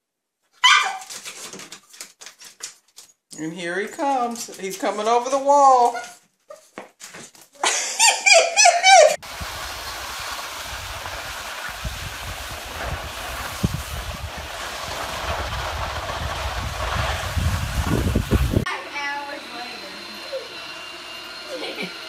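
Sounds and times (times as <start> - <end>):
wind buffeting microphone: 9.2 - 18.7.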